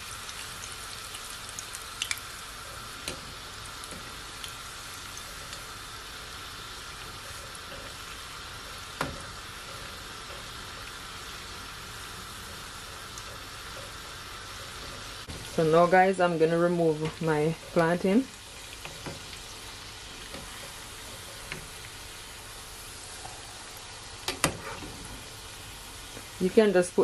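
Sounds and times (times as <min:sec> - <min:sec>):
oil bubbling sizzle: 0:00.0 - 0:27.0
short clicks in frying oil: 0:01.6 - 0:02.2, 0:24.2 - 0:24.6.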